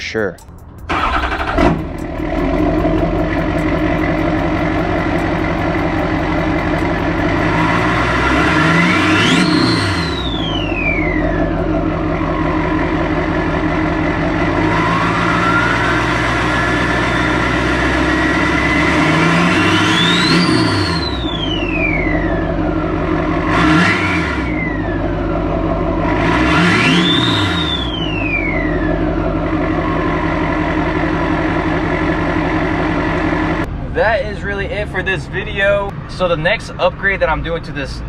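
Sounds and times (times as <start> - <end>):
diesel engine revving: 0.0 - 38.0
turbo whistle: 2.4 - 13.6, 14.5 - 25.0, 26.6 - 31.0.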